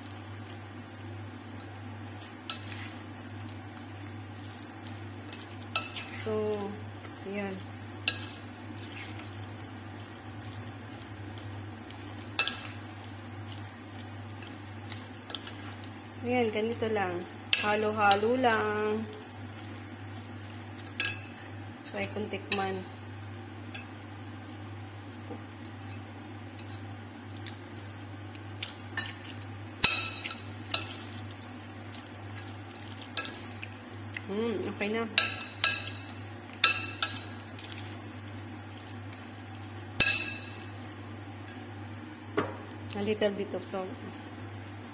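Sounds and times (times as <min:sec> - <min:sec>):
steady low hum: 0:00.0 - 0:44.9
spoon scraping and squelching filling: 0:02.0 - 0:16.0, 0:28.6 - 0:34.3, 0:35.1 - 0:40.9.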